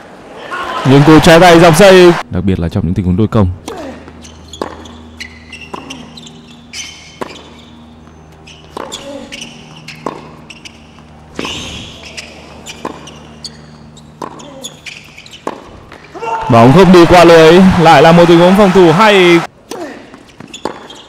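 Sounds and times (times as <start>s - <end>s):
tennis racquet hitting ball: 3.6s - 16.4s, 19.7s - 21.0s
court shoes squeaking: 3.6s - 16.5s, 19.6s - 21.0s.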